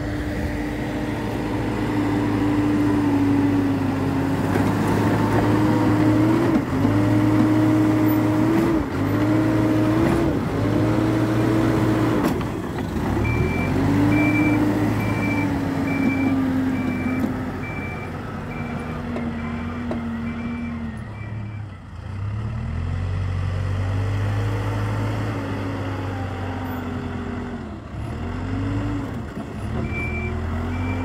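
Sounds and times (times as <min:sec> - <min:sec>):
diesel engine under load: 0:00.0 - 0:31.0
reversing alarm beeping: 0:13.2 - 0:21.8, 0:29.8 - 0:31.0.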